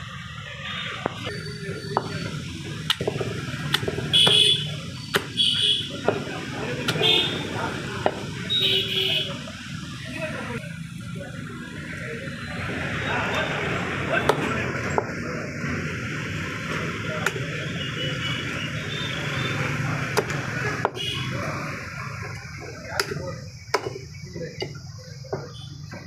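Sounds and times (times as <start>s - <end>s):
steady background noise: 0.0s - 26.0s
cleaver chopping on wooden block: 2.8s - 4.5s, 5.1s - 5.4s.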